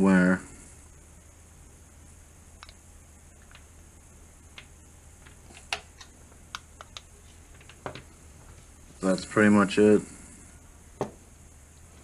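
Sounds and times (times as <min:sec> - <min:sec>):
faint low hum: 0:00.0 - 0:12.0
clip leads clicking: 0:02.6 - 0:02.8, 0:04.5 - 0:08.0.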